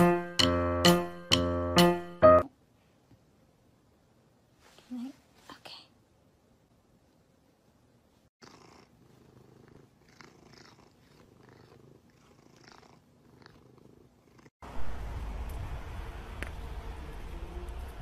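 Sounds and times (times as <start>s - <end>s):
cat purring: 8.4s - 14.5s
outdoor noise with deep rumble: 14.6s - 18.0s.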